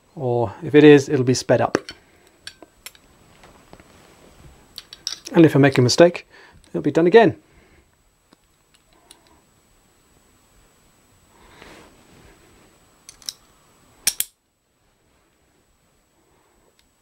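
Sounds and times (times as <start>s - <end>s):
soft handling rustle: 3.1s - 5.9s
small metal parts clicking: 4.8s - 5.4s, 13.1s - 13.4s, 14.0s - 14.4s.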